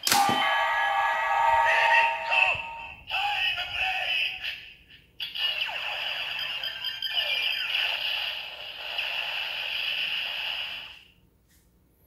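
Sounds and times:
toy electronic hissing sound effect: 7.6 - 11.0.

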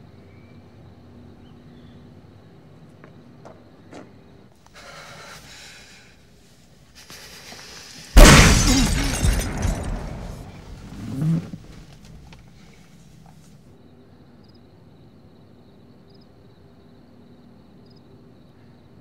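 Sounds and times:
loud gunshot: 8.2 - 10.8
glass shattering: 8.2 - 11.9
crash: 8.2 - 12.5.

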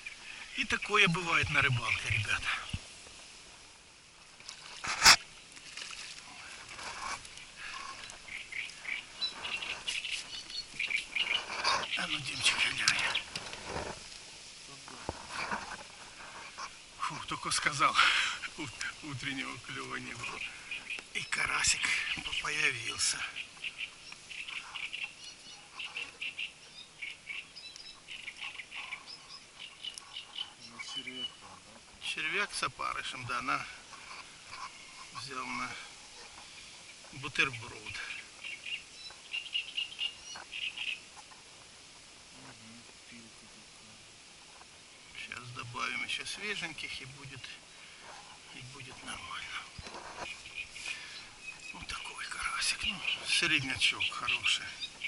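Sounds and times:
birds chirping: 0.0 - 55.0
fishing gear rustling and clicking: 4.4 - 14.2.

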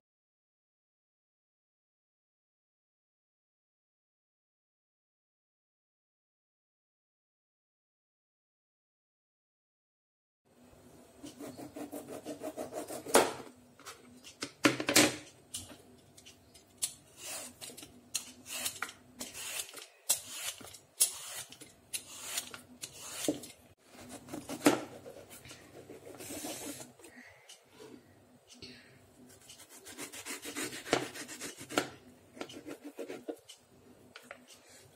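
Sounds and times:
knife scraping mango skin: 17.1 - 26.9, 29.3 - 33.6.

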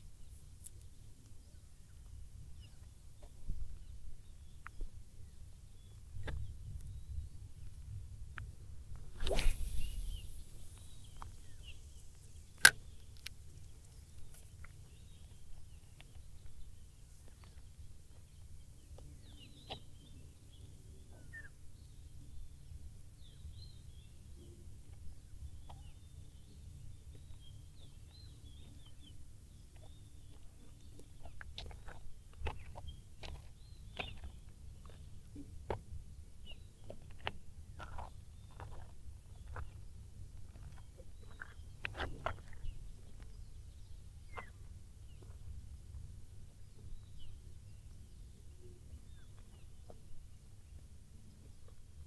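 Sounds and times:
faint bird chirps: 9.2 - 35.3, 40.6 - 46.0.

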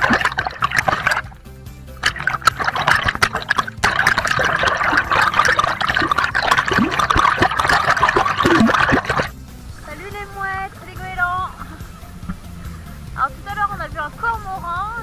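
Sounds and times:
underwater water sloshing and bubbling: 0.0 - 1.4, 2.0 - 9.4.

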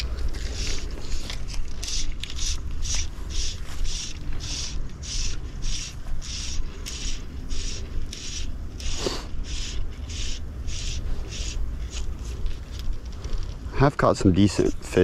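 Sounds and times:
insect buzzing in pulses: 2.0 - 12.0.

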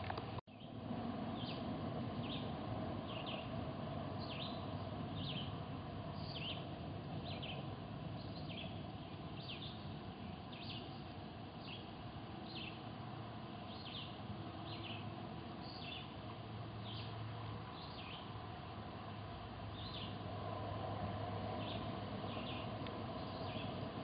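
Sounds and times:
steady low hum: 0.0 - 24.0
small birds chirping: 0.5 - 13.0, 13.6 - 20.2, 21.6 - 24.0.

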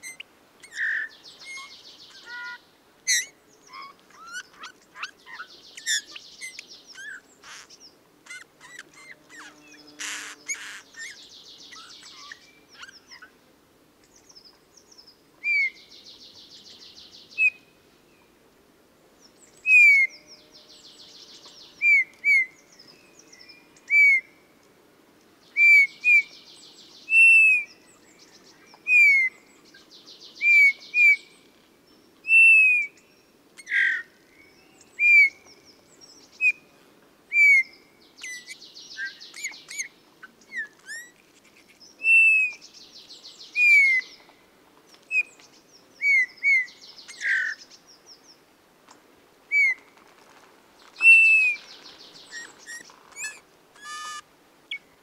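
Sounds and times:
bird rasping buzzes: 0.7 - 13.2, 51.1 - 54.2.

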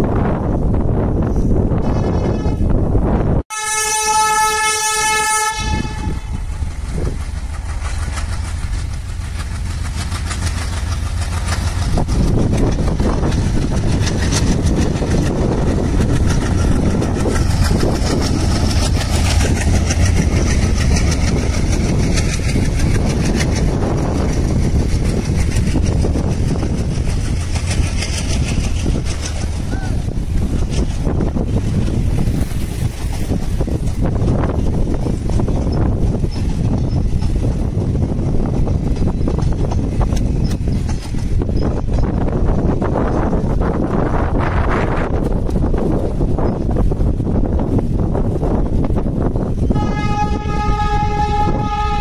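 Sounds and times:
train rumbling past: 0.0 - 52.0
locomotive horn blast: 1.8 - 2.8, 3.5 - 6.4, 49.7 - 52.0.

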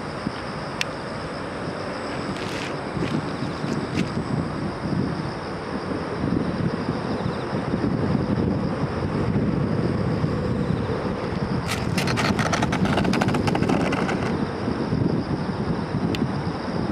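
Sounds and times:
wind buffeting microphone: 2.2 - 16.9
small wheels rattling on dirt: 11.7 - 14.4.

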